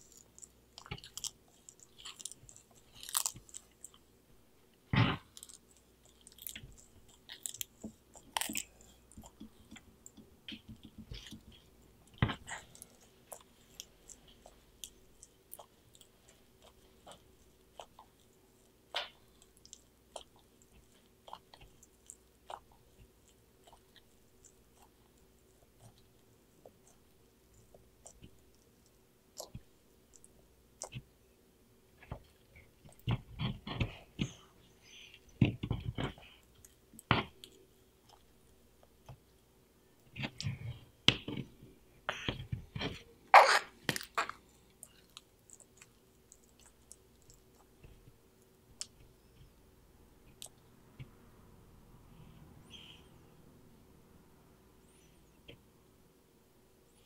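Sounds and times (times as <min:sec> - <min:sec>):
tortoise chewing crunchily: 0:00.0 - 0:04.1, 0:05.2 - 0:09.9, 0:11.1 - 0:31.0
tortoise crunching food: 0:00.0 - 0:04.1, 0:05.2 - 0:10.2.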